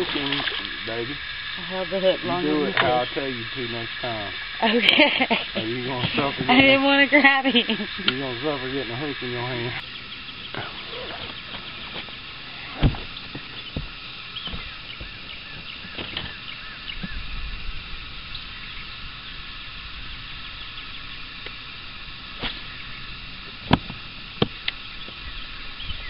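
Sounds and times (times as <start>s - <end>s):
steady background hiss: 0.0s - 26.0s
sharp knocks on boat: 12.8s - 15.2s
faint high chirping: 24.8s - 26.0s.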